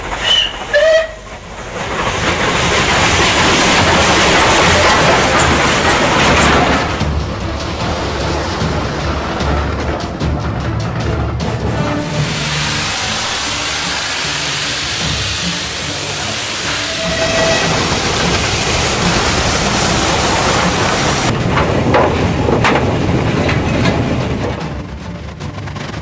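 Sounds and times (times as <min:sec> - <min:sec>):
steam hissing: 0:00.0 - 0:09.7, 0:11.7 - 0:21.3
sharp locomotive beats: 0:00.0 - 0:26.0
train rumble: 0:00.0 - 0:26.0.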